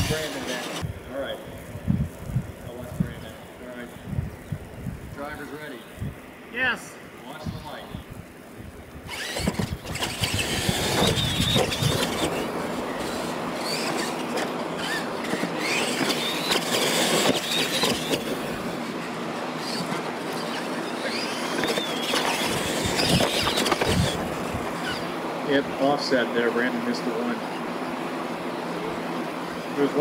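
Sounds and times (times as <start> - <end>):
rc truck motors whining: 0.0 - 1.3, 8.8 - 25.2
steady rush of noise: 0.0 - 30.0.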